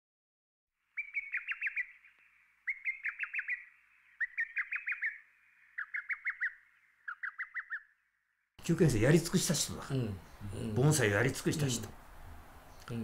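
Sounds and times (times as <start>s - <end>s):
songbird whistling falling notes: 1.0s - 8.0s.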